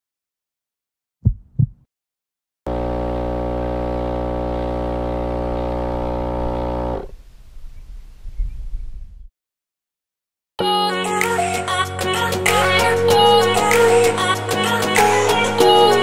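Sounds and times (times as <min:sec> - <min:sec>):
short low thumps: 0:01.2 - 0:01.9.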